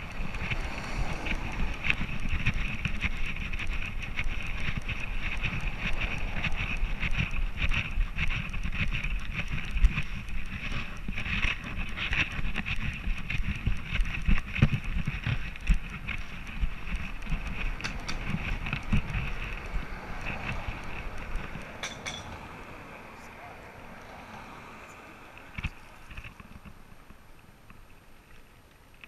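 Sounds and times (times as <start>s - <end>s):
wind on microphone: 0.0s - 28.0s
road traffic passing: 0.0s - 29.0s.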